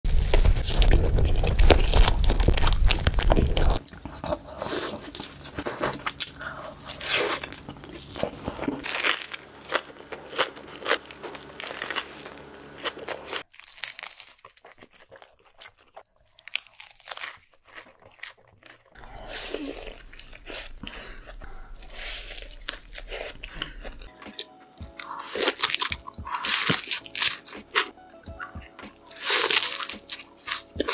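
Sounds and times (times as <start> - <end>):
chewing and crunching food: 0.1 - 30.9
squishing mouth sounds: 17.4 - 30.9
background music: 21.4 - 30.9.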